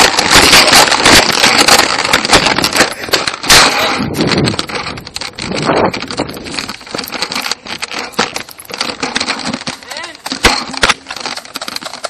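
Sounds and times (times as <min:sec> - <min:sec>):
crackling handling noise: 0:00.0 - 0:12.0.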